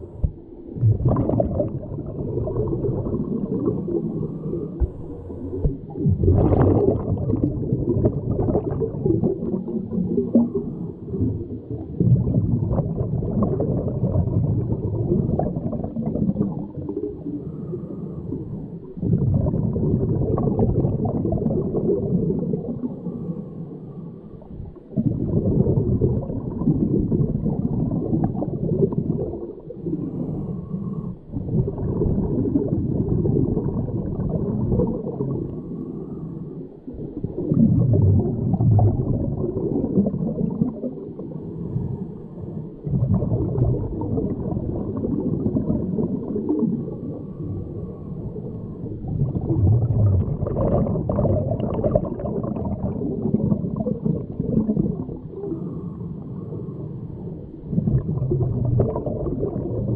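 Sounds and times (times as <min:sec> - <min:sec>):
bubbles gurgling: 0:00.0 - 0:23.6, 0:24.4 - 0:59.9
diver breathing through regulator: 0:03.6 - 0:05.8, 0:17.2 - 0:18.9, 0:22.8 - 0:24.6, 0:29.9 - 0:31.4, 0:35.3 - 0:36.9, 0:55.3 - 0:57.5.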